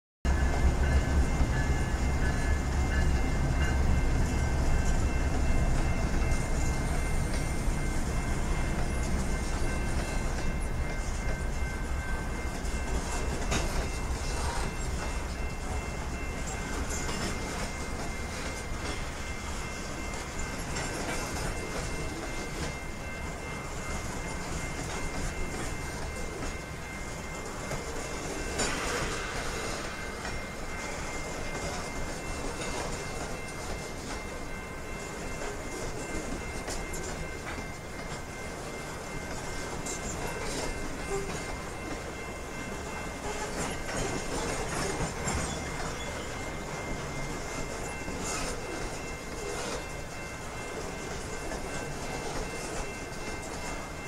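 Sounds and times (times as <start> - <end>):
train cars clickety-clack on rails: 0.3 - 54.0.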